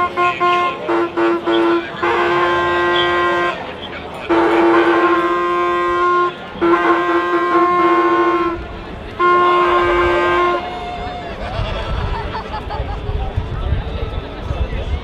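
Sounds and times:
horn blasts: 0.0s - 11.4s.

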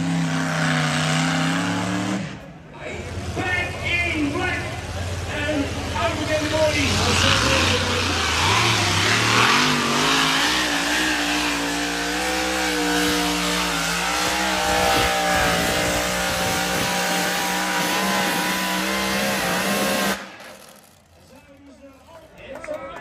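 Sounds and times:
engine revving: 0.0s - 21.1s.

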